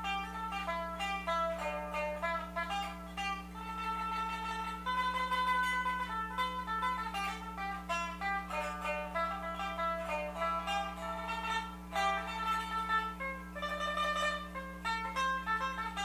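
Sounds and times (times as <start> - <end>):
low steady hum: 0.0 - 16.0
plucked lute melody: 0.0 - 16.0.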